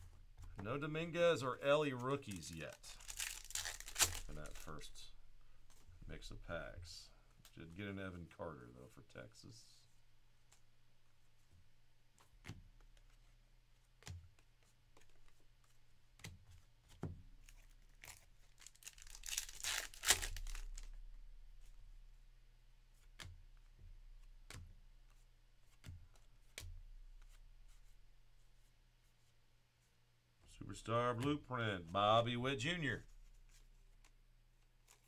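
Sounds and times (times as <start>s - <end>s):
cards clicking being shuffled: 1.4s - 5.0s, 12.2s - 21.0s, 33.5s - 35.0s
wrapper tearing and crinkling: 2.2s - 4.8s, 17.4s - 21.0s.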